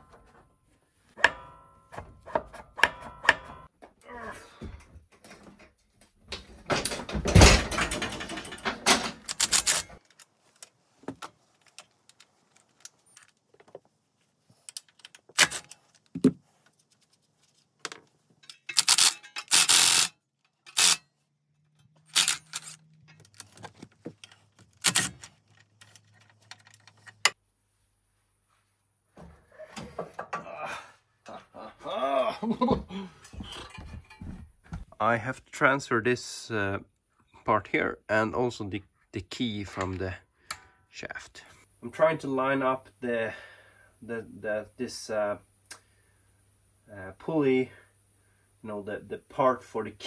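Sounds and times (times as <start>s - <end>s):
metallic clicks and clanks: 4.8s - 13.4s, 17.8s - 27.4s
mower rattling crash: 6.5s - 9.6s.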